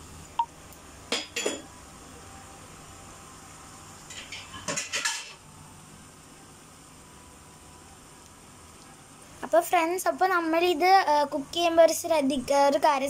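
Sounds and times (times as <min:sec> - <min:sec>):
kitchenware clinking against pan: 0:01.1 - 0:01.7, 0:04.1 - 0:05.4
oil sizzling in a wok: 0:03.2 - 0:05.4.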